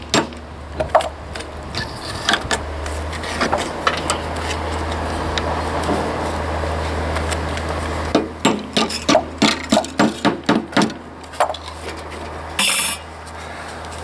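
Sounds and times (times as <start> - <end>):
steady low hum: 0.0 - 14.0
hammer striking steel wire: 8.2 - 11.0.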